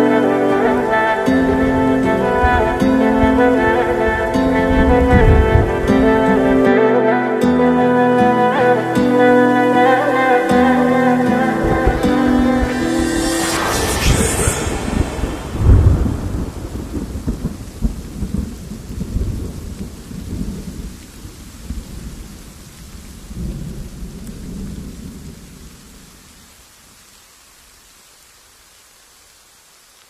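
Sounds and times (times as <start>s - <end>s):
rain: 0.0s - 30.0s
thunder rumbling: 10.2s - 22.0s.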